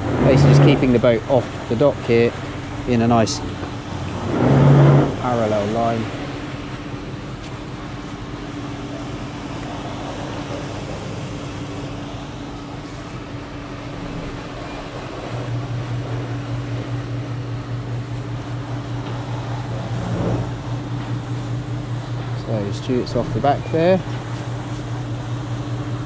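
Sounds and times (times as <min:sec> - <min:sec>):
deeper louder hum: 0:00.0 - 0:23.5
boat machinery humming: 0:00.0 - 0:26.0.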